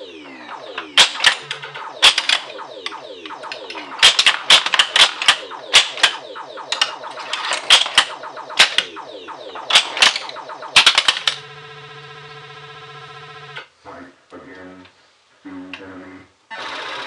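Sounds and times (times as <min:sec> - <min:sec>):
buzzing electronic tone: 0:00.0 - 0:13.6
electronic sound effects: 0:00.0 - 0:13.6.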